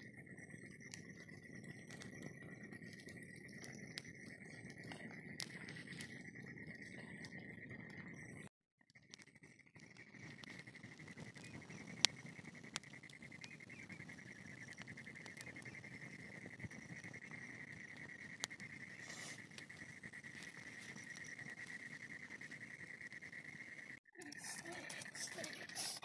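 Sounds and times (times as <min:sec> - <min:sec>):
burning straw popping: 0:00.6 - 0:08.3, 0:09.0 - 0:26.0
fire hissing: 0:09.8 - 0:26.0
high-pitched insect trill: 0:09.9 - 0:26.0.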